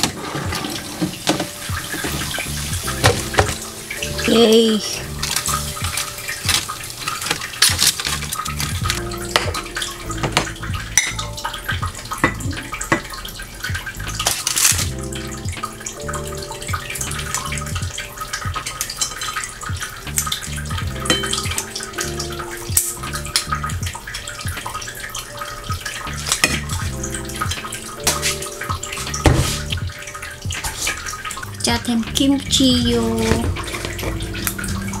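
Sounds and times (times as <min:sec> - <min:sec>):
soft background music: 0:00.0 - 0:35.0
scissors snipping: 0:14.2 - 0:14.9.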